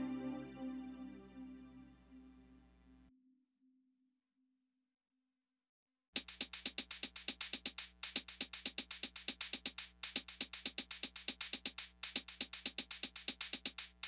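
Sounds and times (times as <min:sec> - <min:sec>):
electronic drum machine beat: 0:06.2 - 0:14.0.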